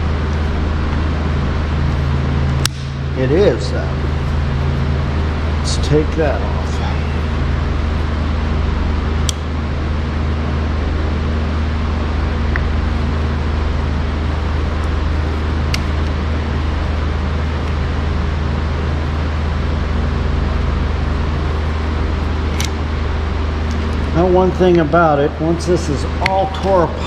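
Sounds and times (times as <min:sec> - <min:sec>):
mechanical hum with low drone: 0:00.0 - 0:27.0.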